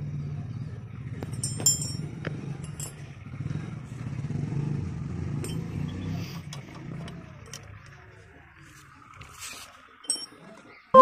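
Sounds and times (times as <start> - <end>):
vehicle engine running: 0.0 - 10.0
spanners clinking on metal: 1.2 - 3.1, 5.4 - 7.8, 10.0 - 10.6.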